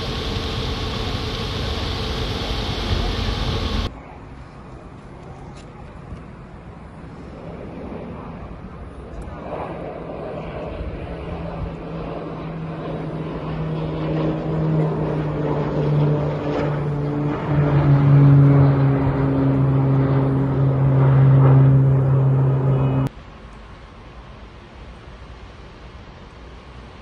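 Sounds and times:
aircraft engines droning overhead: 0:00.0 - 0:27.0.

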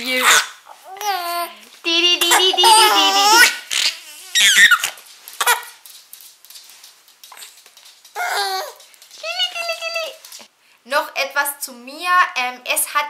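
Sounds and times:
baby laughing and squealing: 0:02.2 - 0:05.7, 0:08.2 - 0:08.8.

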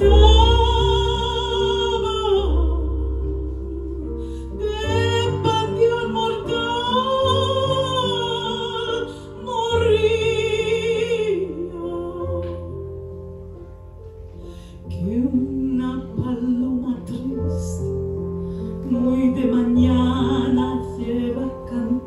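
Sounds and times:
woman singing with vibrato: 0:00.0 - 0:12.7, 0:18.9 - 0:22.0
digital piano chords: 0:00.0 - 0:22.0.

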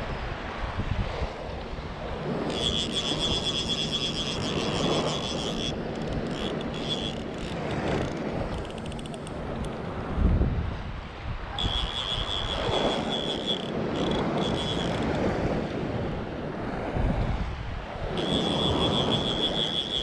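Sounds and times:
wind buffeting microphone: 0:00.0 - 0:20.0
fishing reel whining: 0:02.2 - 0:09.8, 0:11.5 - 0:15.4, 0:18.1 - 0:20.0.

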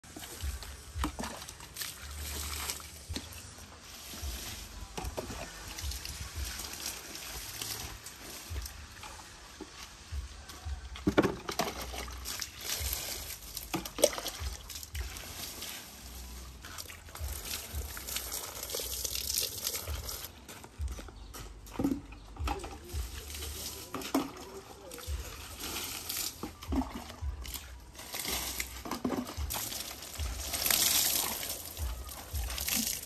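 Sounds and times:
water poured over plants: 0:00.0 - 0:20.5, 0:21.8 - 0:33.0
water splashing on leaves: 0:00.1 - 0:10.2, 0:10.9 - 0:20.4, 0:22.8 - 0:33.0.

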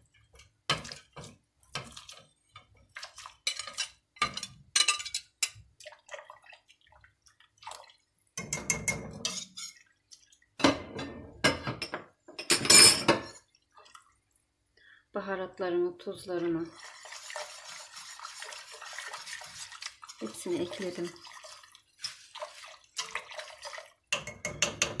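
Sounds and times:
whisk clinking and scraping pot: 0:00.0 - 0:06.5, 0:08.4 - 0:14.0, 0:16.4 - 0:25.0
liquid sloshing and dripping: 0:00.0 - 0:10.8, 0:13.3 - 0:14.9, 0:16.6 - 0:25.0.

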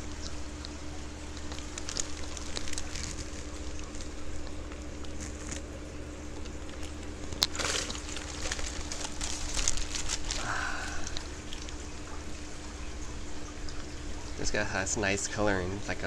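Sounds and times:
steady low hum: 0:00.0 - 0:16.0
plastic crinkling: 0:01.3 - 0:05.7, 0:06.3 - 0:11.9
water splashing and dripping: 0:06.4 - 0:14.6.

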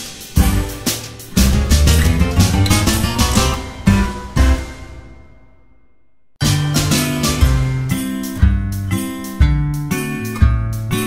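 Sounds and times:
music chord ringing: 0:01.3 - 0:05.8.

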